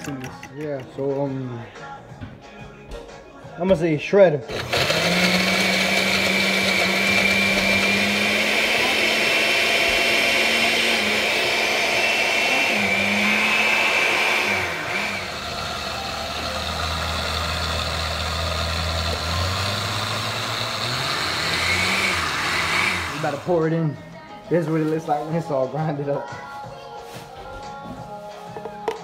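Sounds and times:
blender grinding chips: 4.5s - 23.6s.

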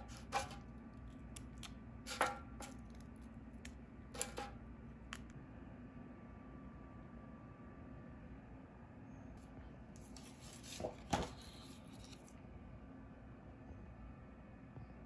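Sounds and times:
croutons crunching and tapping: 0.0s - 5.3s.

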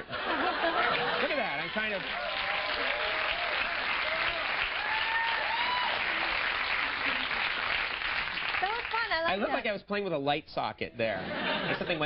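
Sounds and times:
audience applauding: 0.3s - 9.5s.

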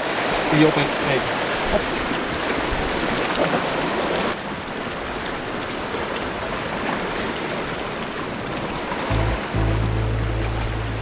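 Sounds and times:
rushing splashing water: 0.0s - 11.0s
background music with deep bass: 9.1s - 11.0s.

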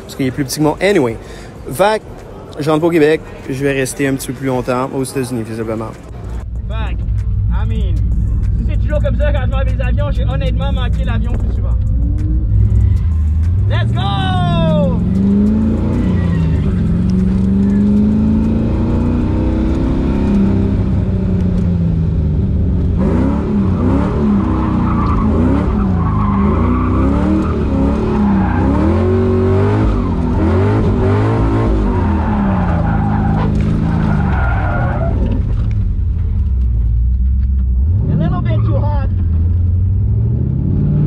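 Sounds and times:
engine revving: 7.0s - 34.2s, 37.7s - 41.0s
tyres squealing: 13.9s - 18.1s, 23.7s - 30.2s, 31.4s - 35.5s.

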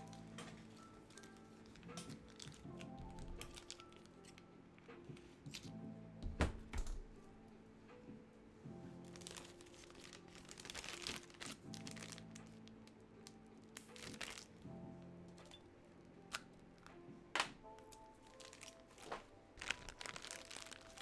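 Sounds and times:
bubble wrap crackle: 0.0s - 4.4s, 9.0s - 14.8s, 17.7s - 21.0s
plastic crinkling and rustling: 0.0s - 4.4s, 9.0s - 14.7s, 17.8s - 21.0s
soft background music: 0.0s - 21.0s.

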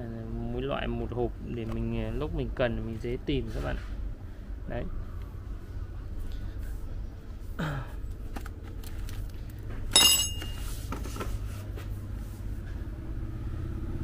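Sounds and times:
steady low hum: 0.0s - 14.0s
metal parts clattering: 9.9s - 10.7s.

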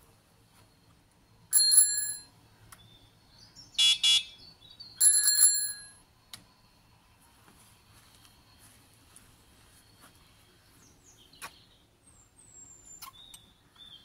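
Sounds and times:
bicycle bell ringing: 1.5s - 2.3s, 5.0s - 6.0s.

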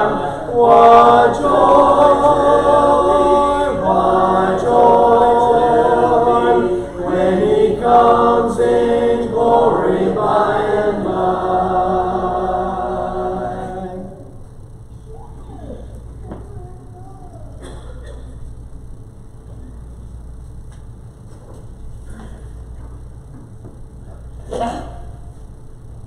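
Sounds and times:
congregation singing a hymn: 0.0s - 14.4s.

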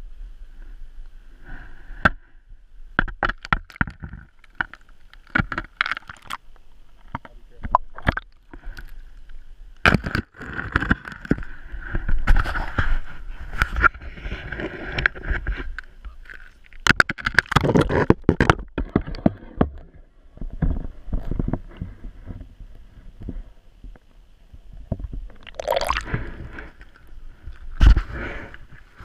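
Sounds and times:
water splashing and gurgling: 25.2s - 26.6s.

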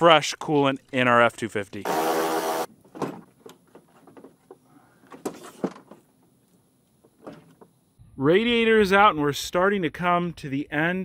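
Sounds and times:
metal and plastic knocks and scrapes: 2.8s - 6.1s, 7.0s - 7.8s.

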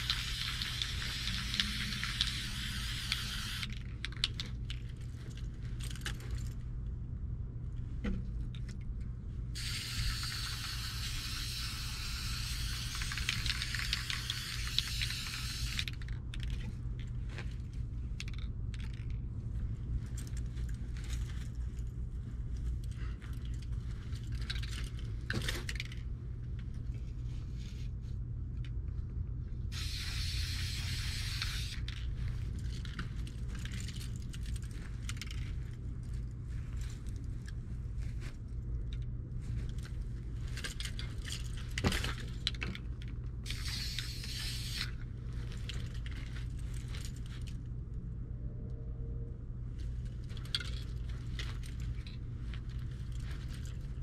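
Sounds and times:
spray paint can hissing: 0.0s - 3.7s, 9.6s - 16.0s, 29.7s - 31.8s, 43.4s - 44.9s
low rumble: 44.9s - 54.0s.

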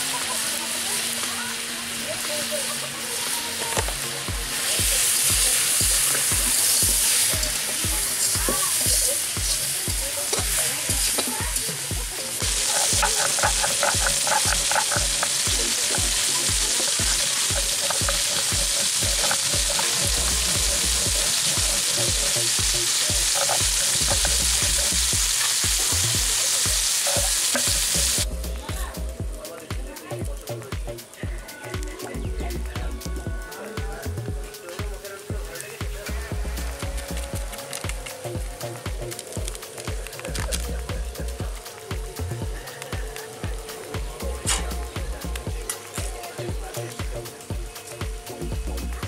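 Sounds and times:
food sizzling in hot oil: 0.0s - 49.0s
metal ladle scraping pan: 12.4s - 25.7s
stone roller grinding on slab: 12.4s - 28.2s.

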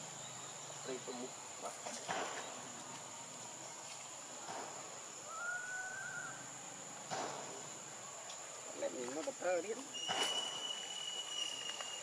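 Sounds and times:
insect chorus drone: 0.0s - 12.0s
thin whistled note: 9.9s - 12.0s.

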